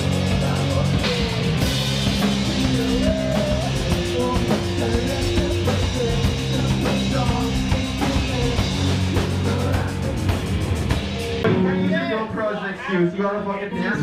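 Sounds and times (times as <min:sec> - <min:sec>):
person singing: 0:00.0 - 0:10.4
electric guitar: 0:00.0 - 0:12.2
drum kit: 0:00.0 - 0:12.3.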